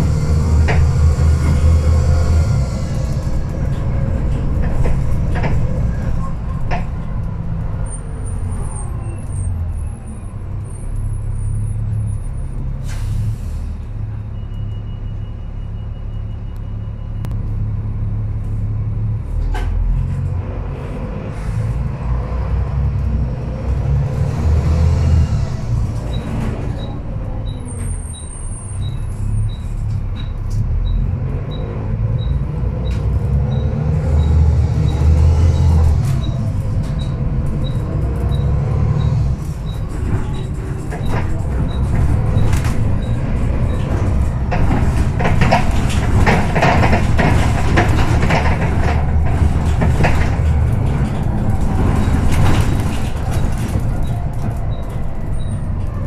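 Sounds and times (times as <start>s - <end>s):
bus diesel engine accelerating: 0.0s - 56.0s
interior panels rattling: 40.0s - 55.2s.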